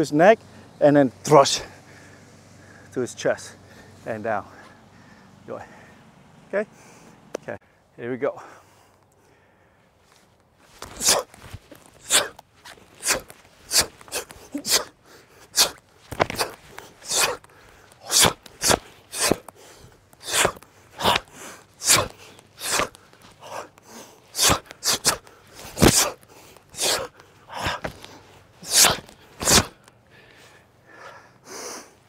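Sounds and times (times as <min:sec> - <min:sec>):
sharp forceful exhalations: 0:10.7 - 0:32.0.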